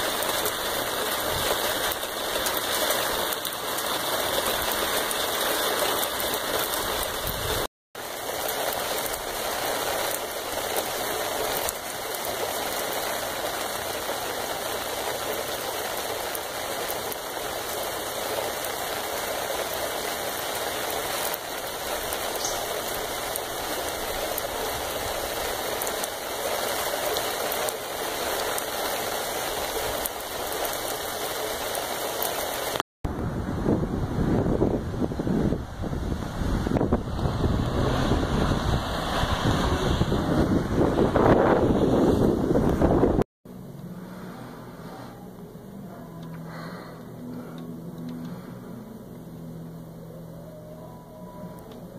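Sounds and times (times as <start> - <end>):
rain on concrete: 0.0 - 51.9.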